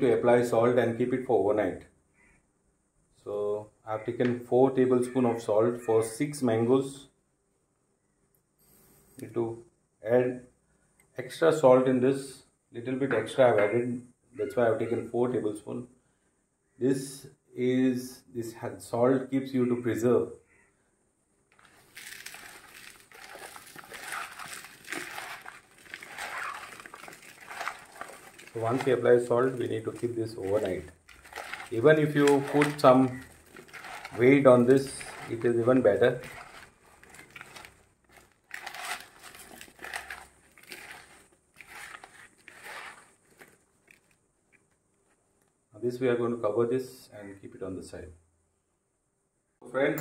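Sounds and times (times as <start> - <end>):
food pieces rustling in plastic bowl: 21.5 - 44.2.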